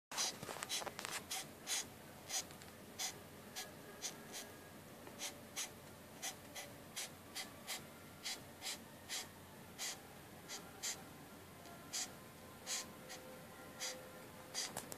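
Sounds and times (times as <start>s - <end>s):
beetle hissing: 0.2s - 4.5s.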